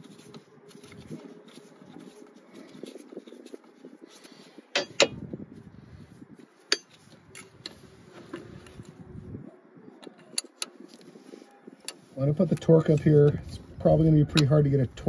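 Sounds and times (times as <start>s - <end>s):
gloved hands rustling: 0.0s - 9.4s.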